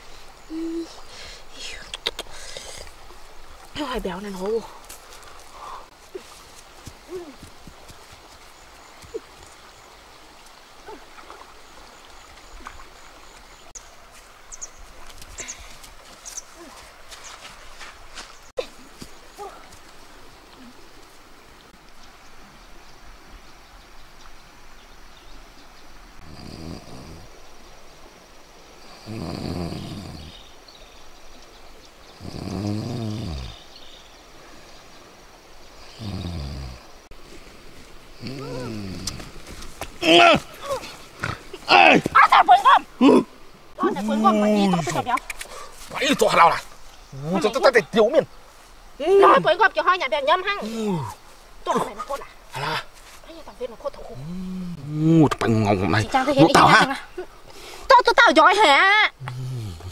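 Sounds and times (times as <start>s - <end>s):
flowing river water: 0.0s - 59.9s
man snoring: 26.2s - 27.2s, 29.0s - 30.3s, 32.2s - 33.6s, 36.0s - 36.8s, 59.2s - 59.9s.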